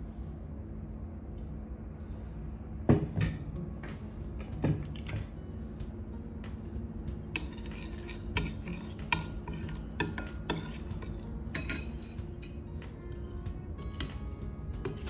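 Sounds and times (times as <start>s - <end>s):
spoon stirring marinade: 7.1s - 15.0s
spoon clinking against ceramic bowl: 7.4s - 12.7s, 13.9s - 15.0s.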